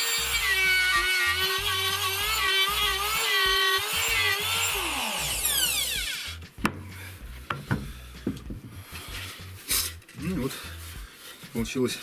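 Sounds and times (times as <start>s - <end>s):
router spinning down: 0.0s - 6.4s
router whine: 0.0s - 6.4s.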